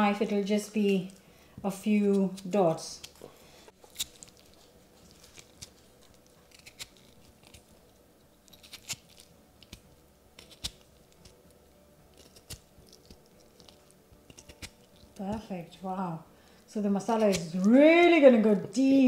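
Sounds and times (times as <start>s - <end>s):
fork pricking potato: 3.8s - 15.8s, 17.0s - 18.1s.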